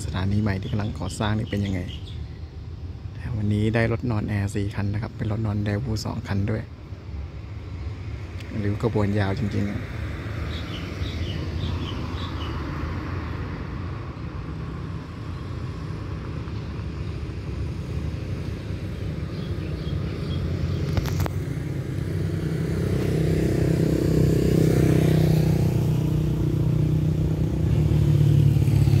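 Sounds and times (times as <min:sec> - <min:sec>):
diesel locomotive engine humming: 0:13.3 - 0:29.0.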